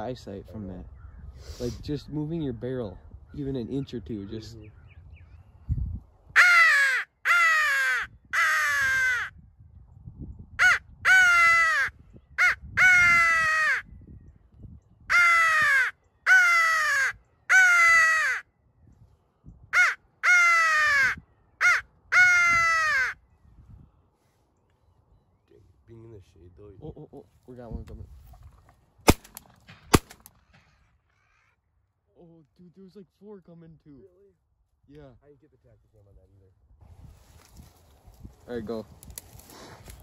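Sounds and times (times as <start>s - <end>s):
crow call caws: 6.4s - 9.4s, 10.6s - 13.9s, 15.1s - 18.5s, 19.7s - 23.2s, 30.4s - 31.7s.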